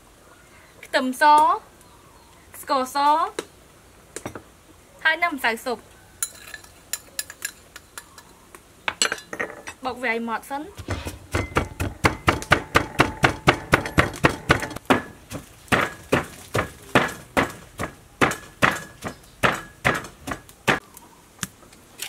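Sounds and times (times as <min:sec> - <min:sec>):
wooden pestle pounding in mortar: 0:10.8 - 0:20.8.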